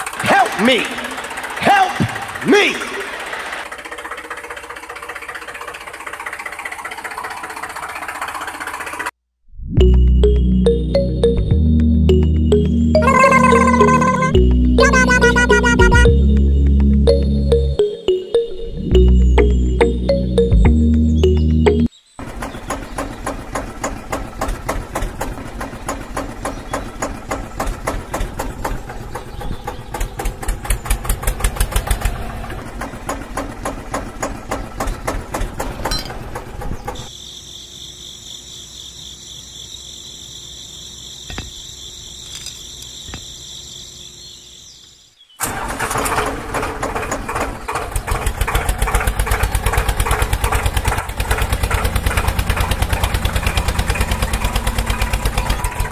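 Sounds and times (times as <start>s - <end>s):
tractor engine chugging: 0.0s - 9.2s, 12.1s - 37.1s, 45.4s - 55.9s.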